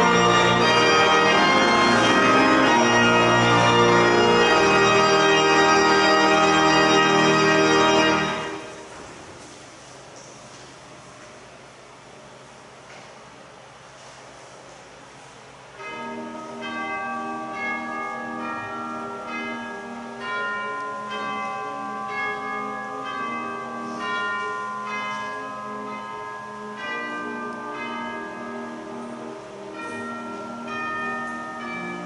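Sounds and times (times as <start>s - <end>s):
church bells ringing: 0.0s - 9.2s, 15.7s - 32.0s.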